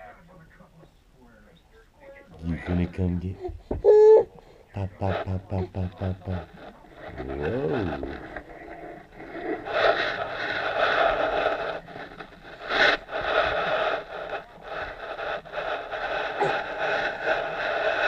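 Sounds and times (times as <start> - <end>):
baby crawling on rug: 5.0 - 18.0.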